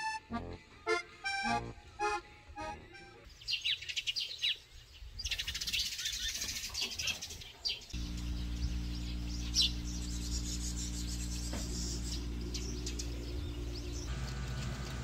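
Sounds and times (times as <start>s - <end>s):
small birds chirping: 3.3s - 15.0s
steady low hum: 8.0s - 15.0s.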